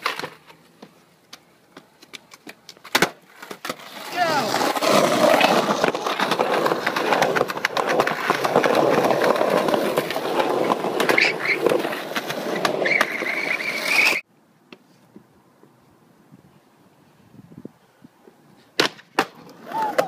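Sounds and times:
wheels clicking over pavement cracks: 0:00.0 - 0:14.2
skateboard wheels rolling on concrete: 0:00.0 - 0:20.0.

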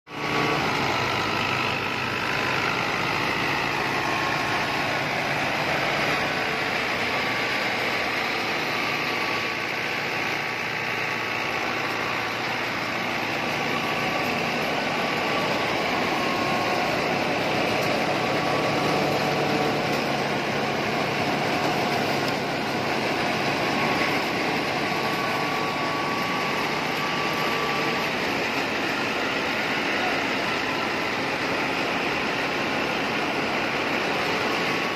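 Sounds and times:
diesel tractor engine running: 0:00.1 - 0:34.9
threshing machine churning: 0:00.1 - 0:34.9.

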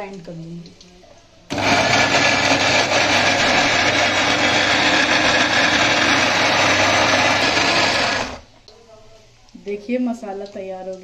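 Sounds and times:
mixer grinder running: 0:01.5 - 0:08.5.

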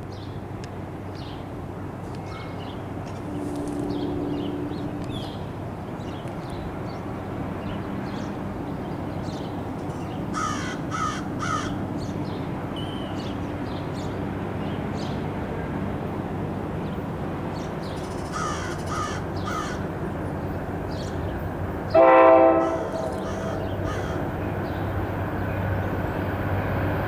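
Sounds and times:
steady low rumble: 0:00.1 - 0:09.8
small birds chirping: 0:02.2 - 0:10.2
crow cawing: 0:10.4 - 0:11.7, 0:18.3 - 0:19.8, 0:22.6 - 0:24.3.

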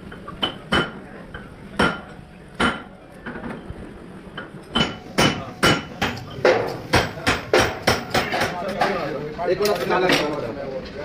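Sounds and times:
hammer striking metal: 0:04.8 - 0:09.0.

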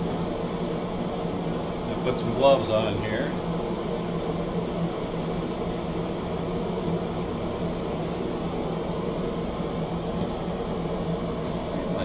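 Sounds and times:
gas torch burner rushing: 0:00.0 - 0:12.0.

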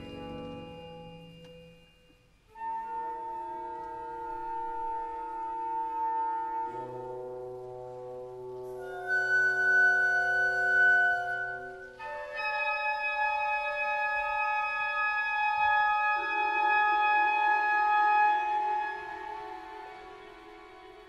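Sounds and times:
orchestra playing sustained chords: 0:00.0 - 0:21.0.

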